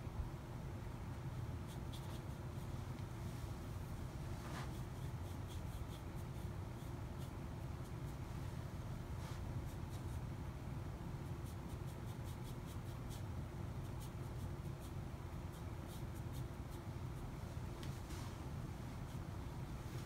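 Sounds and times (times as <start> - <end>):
low room hum: 0.0 - 20.0
paintbrush strokes on paper: 4.2 - 10.2, 11.3 - 20.0.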